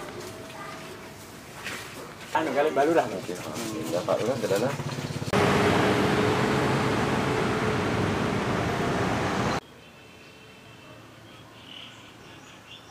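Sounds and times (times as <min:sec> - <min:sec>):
road traffic with engine hum: 0:03.5 - 0:09.6.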